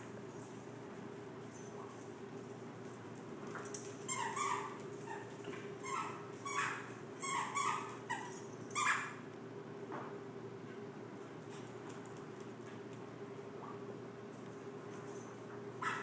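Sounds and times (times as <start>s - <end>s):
squeaky dog toy squeaking: 4.1s - 9.1s.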